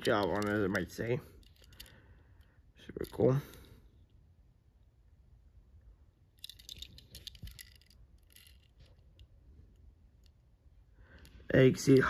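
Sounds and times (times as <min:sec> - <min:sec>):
toy car clicking and rustling: 0:00.0 - 0:03.8, 0:06.4 - 0:10.4.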